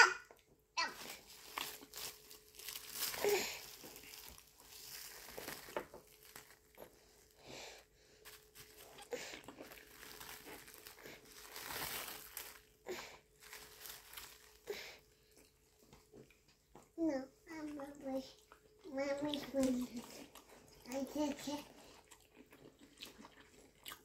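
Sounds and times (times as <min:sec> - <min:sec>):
plastic wrap crinkling: 0:00.8 - 0:15.1.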